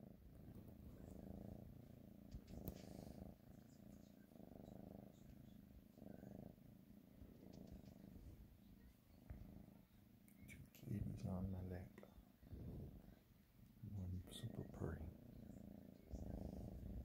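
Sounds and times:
kitten purring: 0.0 - 17.0.

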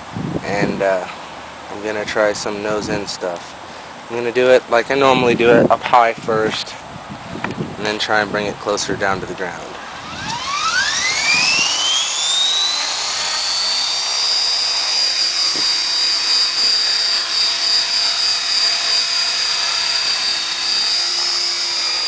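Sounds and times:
rc helicopter rotor whine: 9.8 - 22.0.

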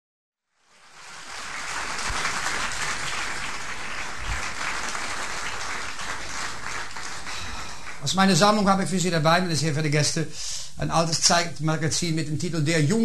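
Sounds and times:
audience applauding: 0.6 - 8.3.

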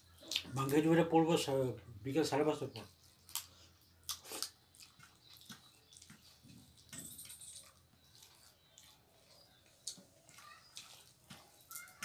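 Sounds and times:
soft chewing: 0.0 - 0.9, 2.8 - 12.0
lip smacks: 0.2 - 0.5, 3.3 - 6.9
fingers squishing rice: 7.9 - 12.0.

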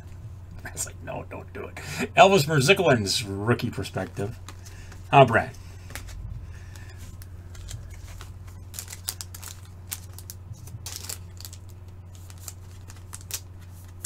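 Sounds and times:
steady low hum: 0.0 - 14.0
trading cards clicking and sliding: 4.0 - 14.0.

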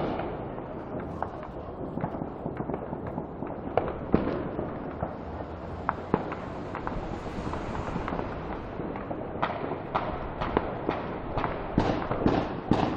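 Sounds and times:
fireworks popping and cracking: 0.0 - 12.9
loud firework bangs: 0.0 - 12.9
steady rumble: 3.3 - 11.7.

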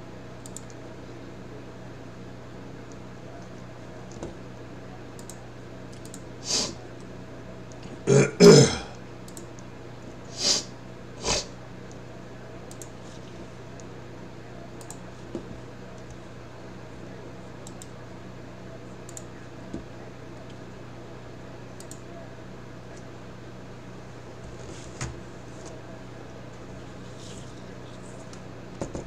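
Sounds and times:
low electrical hum: 0.0 - 29.0
computer mouse clicks: 0.4 - 0.8, 5.2 - 6.2, 9.3 - 9.6, 12.7 - 13.0, 14.8 - 15.0, 17.6 - 17.9, 19.1 - 19.3, 21.8 - 22.0
person clearing throat: 8.0 - 9.0.

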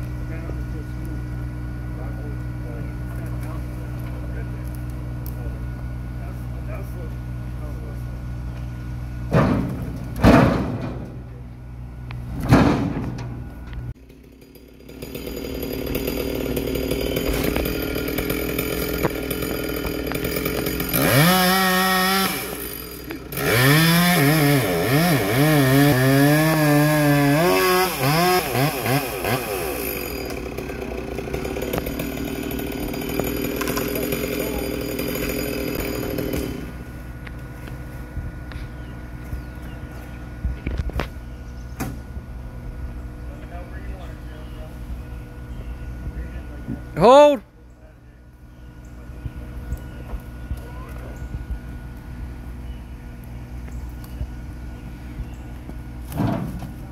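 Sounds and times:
low engine hum: 0.0 - 14.0, 36.6 - 56.9
loud thuds: 9.3 - 11.3, 12.3 - 13.4
chainsaw revving: 14.0 - 37.4.

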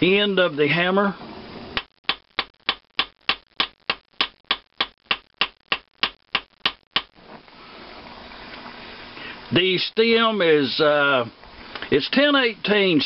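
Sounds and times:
hammer striking metal: 2.1 - 7.1.

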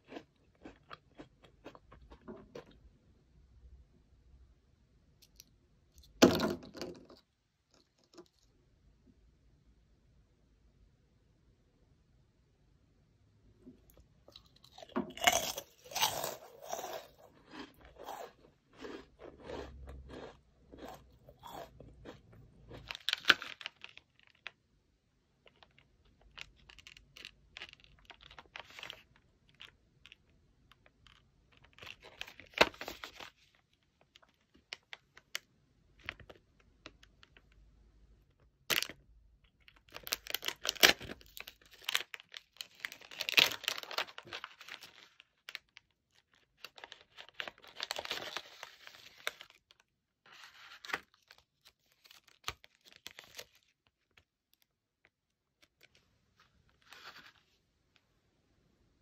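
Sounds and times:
crunching and chewing snack: 0.0 - 2.8, 13.9 - 24.6, 25.4 - 37.6, 38.7 - 56.0
plastic wrapper crinkling: 22.8 - 24.6, 25.4 - 30.2, 30.8 - 35.4, 38.7 - 56.0
wrapper tearing open: 39.9 - 49.8, 50.5 - 53.7.

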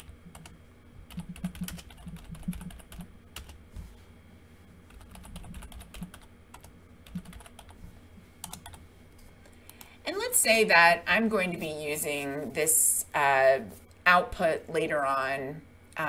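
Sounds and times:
computer keyboard typing: 0.0 - 3.6, 4.9 - 7.8, 8.4 - 8.8.

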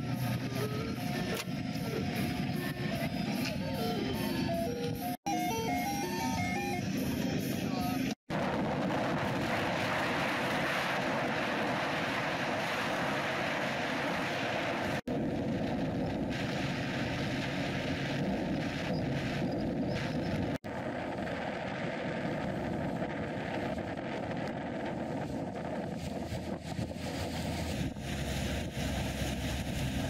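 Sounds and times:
motorboat motor: 0.0 - 8.1
wind buffeting microphone: 5.9 - 30.0.

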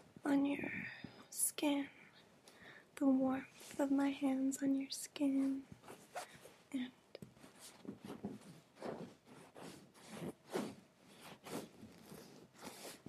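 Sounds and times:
hands rubbing brushing swishes: 7.3 - 13.0.

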